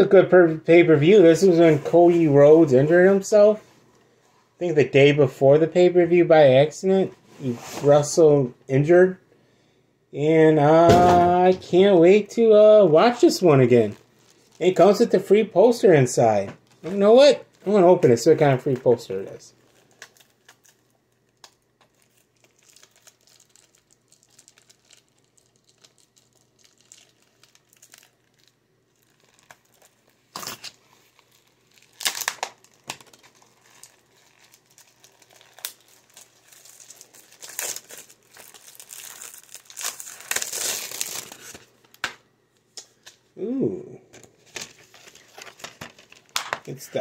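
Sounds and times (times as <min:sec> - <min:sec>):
plastic wrap crinkling: 0:10.9 - 0:15.4, 0:16.3 - 0:43.3, 0:44.2 - 0:47.0.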